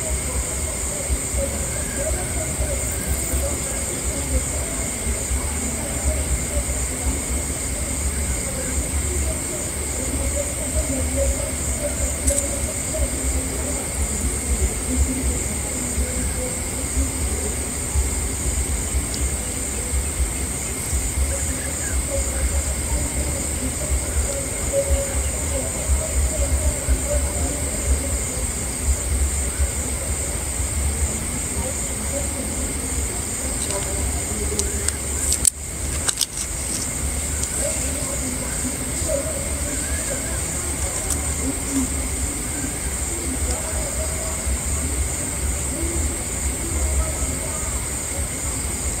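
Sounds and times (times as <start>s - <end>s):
high-pitched insect chorus: 0.0s - 49.0s
steady high hiss: 0.0s - 49.0s
sharp clicks: 34.6s - 37.6s.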